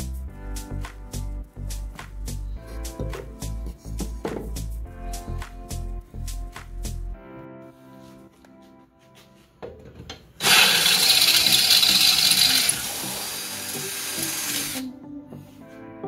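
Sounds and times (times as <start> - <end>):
cordless drill drilling through steel: 10.4 - 14.9.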